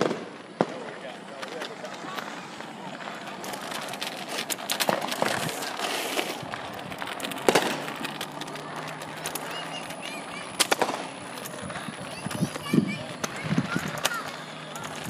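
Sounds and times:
loud firework bang: 0.0s - 0.9s, 10.7s - 11.1s
fireworks popping and crackling: 0.0s - 15.0s.

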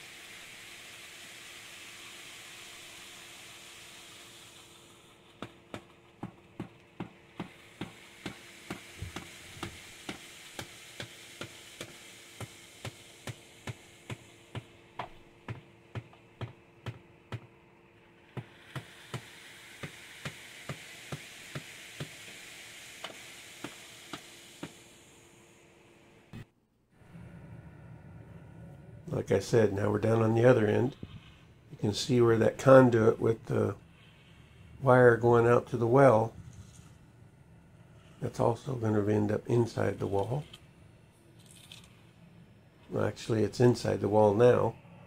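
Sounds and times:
hammer tapping concrete forms: 5.4s - 17.5s.

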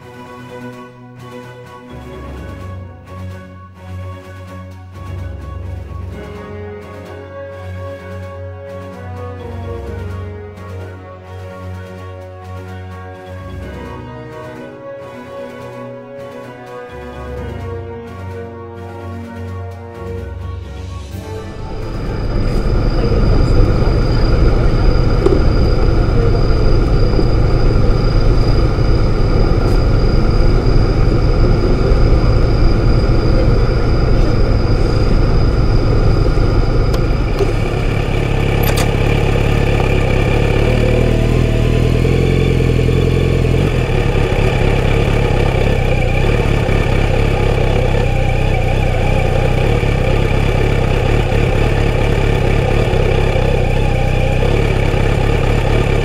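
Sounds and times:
motorcycle engine idling: 21.2s - 56.0s.

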